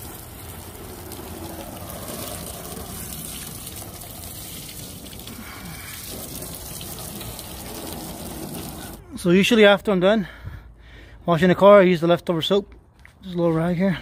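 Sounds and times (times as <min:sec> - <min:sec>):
water spraying on a car: 0:00.0 - 0:09.1.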